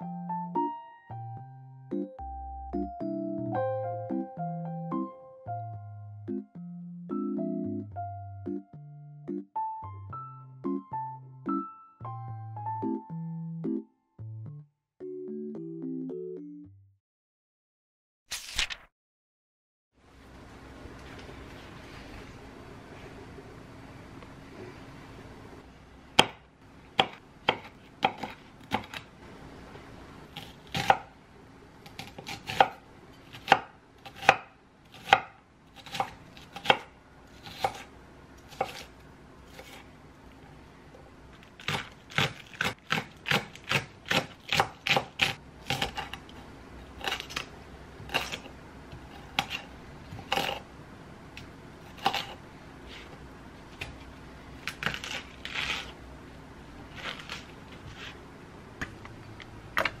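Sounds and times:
knife chopping on wooden board: 26.2 - 26.4, 27.0 - 29.0, 32.0 - 37.9, 38.5 - 38.9, 41.6 - 46.2, 49.0 - 50.6, 52.0 - 52.4.

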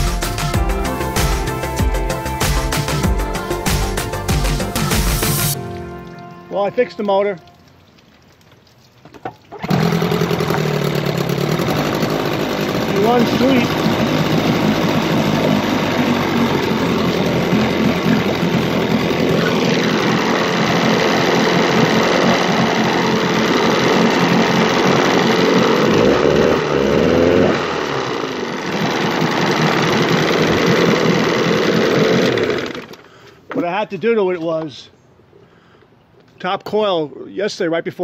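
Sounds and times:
outboard motor running: 0.0 - 6.4, 9.5 - 33.2.

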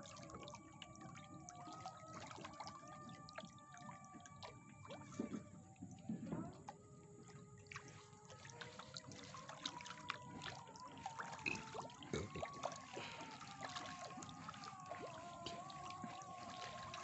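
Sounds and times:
fish splashing at surface: 7.2 - 17.0.

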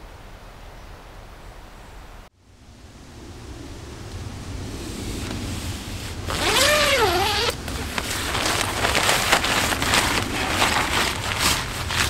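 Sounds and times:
tent fabric rustling: 5.3 - 12.0
tent zipper unzipping: 6.3 - 12.0.

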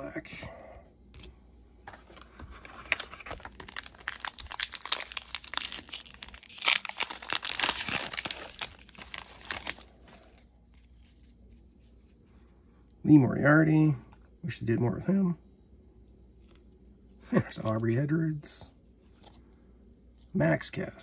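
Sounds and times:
foil wrapper crinkling: 2.0 - 11.3.

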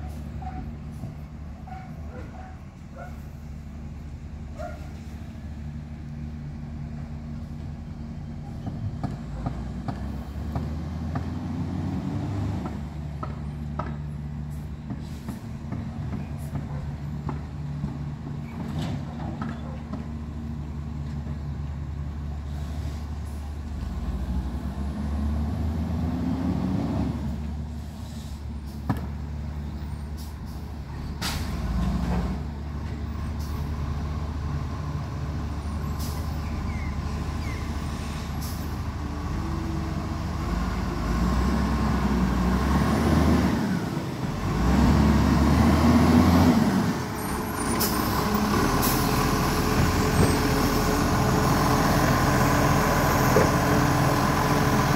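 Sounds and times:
garbage truck diesel engine: 0.0 - 54.9
air brakes hissing: 14.5 - 15.6, 27.7 - 28.9, 35.7 - 36.8, 37.4 - 38.8.

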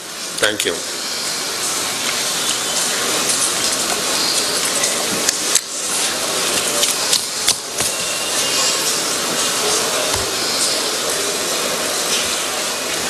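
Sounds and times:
room noise hiss: 0.0 - 13.0.

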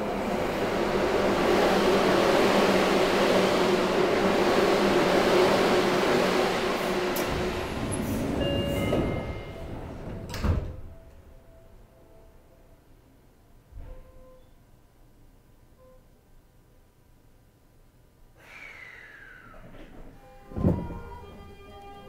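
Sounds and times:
train rumble: 0.0 - 11.3, 19.2 - 22.0.

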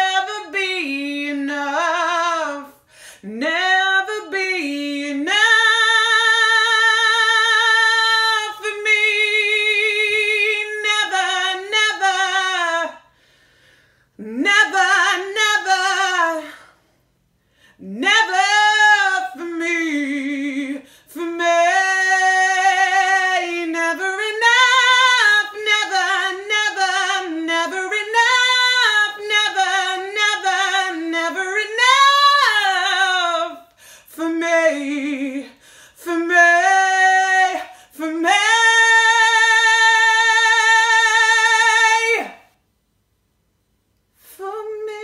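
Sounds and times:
woman singing unaccompanied: 0.0 - 13.1, 14.2 - 16.8, 17.8 - 42.5, 44.2 - 45.0
singer breathing: 2.8 - 3.3, 13.0 - 14.2, 16.6 - 17.8, 33.6 - 34.1, 35.5 - 36.0.

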